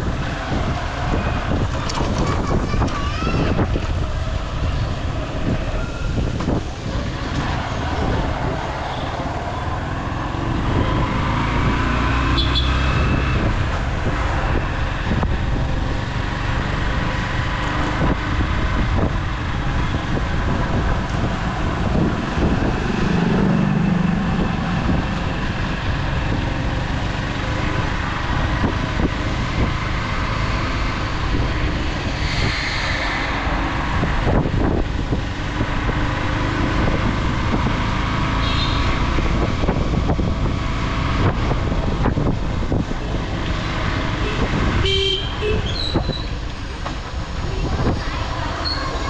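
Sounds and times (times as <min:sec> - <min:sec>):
wind noise on microphone: 0:00.0 - 0:49.0
horn tooting: 0:12.3 - 0:13.1, 0:38.4 - 0:39.0, 0:44.2 - 0:46.0.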